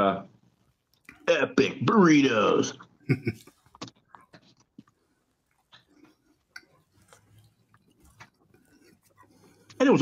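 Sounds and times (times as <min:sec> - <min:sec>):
mouth clicks and smacks: 0:00.9 - 0:01.3
person chewing food: 0:03.2 - 0:09.8.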